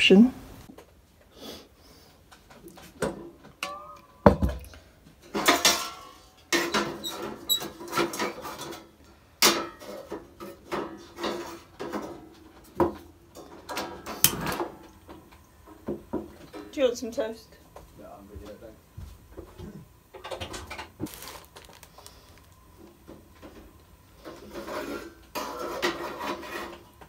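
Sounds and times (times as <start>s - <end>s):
kettle set down on wooden counter: 4.3s - 4.6s.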